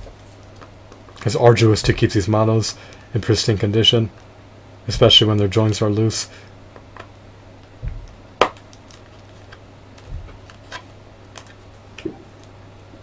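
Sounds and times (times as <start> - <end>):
dull low thumps: 7.8 - 8.2, 10.1 - 10.4.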